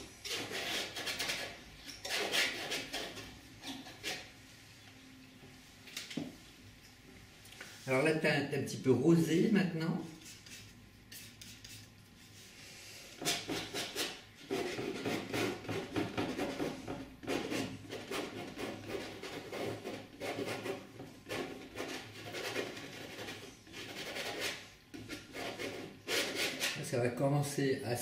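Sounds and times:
painting knife scraping canvas: 0.0 - 4.3, 10.0 - 26.9.

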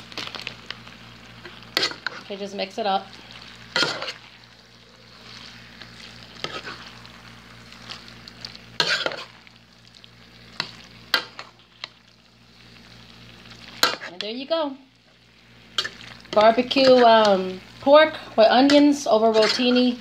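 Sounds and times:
spoon scraping a pan: 1.4 - 2.3, 3.7 - 4.3, 5.2 - 7.0, 8.8 - 9.4, 13.8 - 14.4, 15.7 - 17.3, 18.6 - 20.0.

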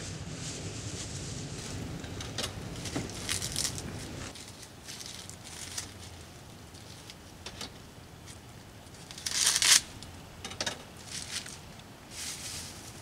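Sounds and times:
bag crinkling: 2.6 - 7.2, 9.0 - 10.1.

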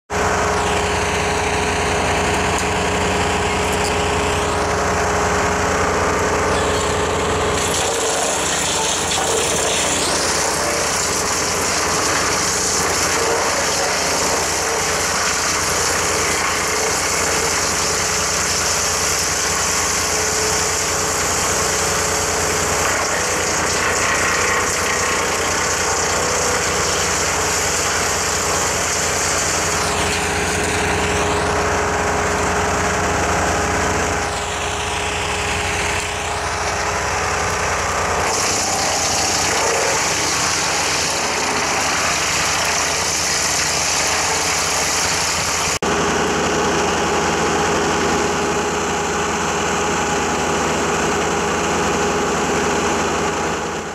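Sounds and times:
wood chipper engine drone: 0.0 - 53.9
hiss of wood being chipped: 7.6 - 31.4.

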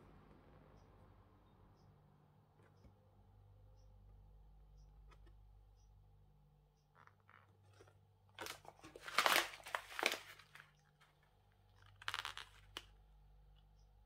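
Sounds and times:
packaging crinkling: 7.7 - 12.9.

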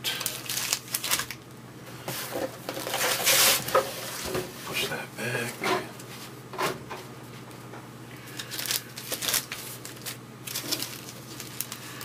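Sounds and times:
cards rustling and scraping: 2.0 - 5.0, 8.4 - 12.0.

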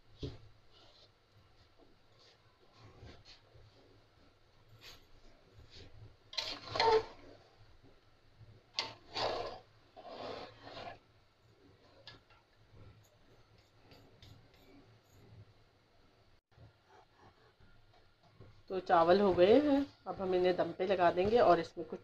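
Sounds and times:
ladle scraping cooking pot: 6.4 - 7.3, 8.8 - 11.0.

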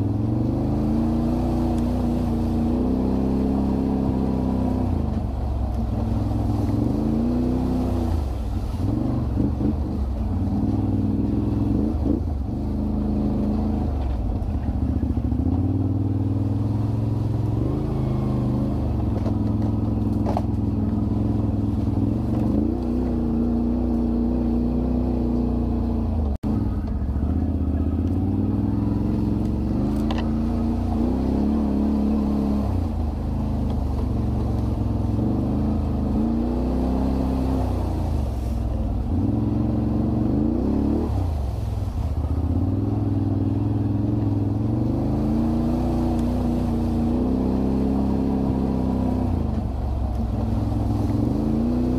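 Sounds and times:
quad bike engine revving: 0.0 - 5.2, 5.9 - 51.9.

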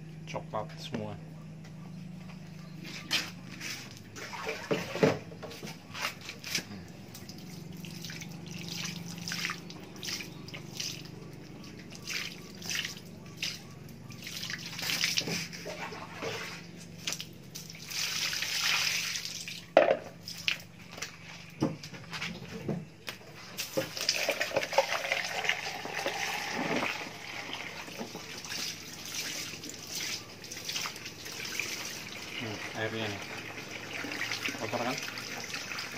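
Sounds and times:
water pouring and splashing on concrete: 3.6 - 13.6, 14.2 - 20.7, 23.5 - 35.9
water dripping: 6.4 - 15.3, 17.0 - 21.1, 23.6 - 35.9.

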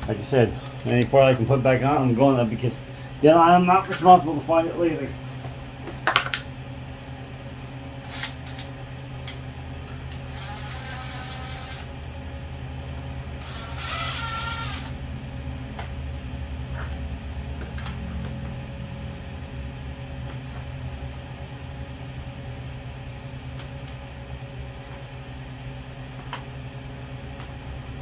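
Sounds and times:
steady low hum: 0.0 - 28.0
cordless drill running: 8.0 - 8.6, 10.2 - 11.9, 13.4 - 15.0.

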